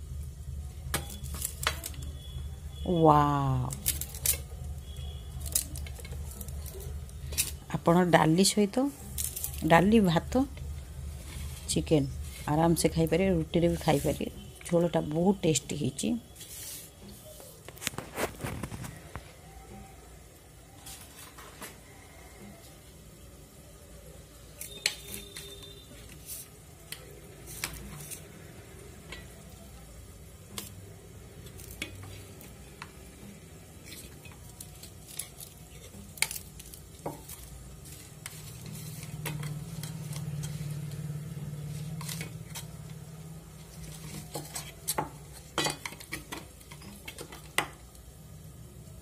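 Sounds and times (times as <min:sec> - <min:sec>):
metal spoon scraping steel plate: 0:37.8 - 0:40.9.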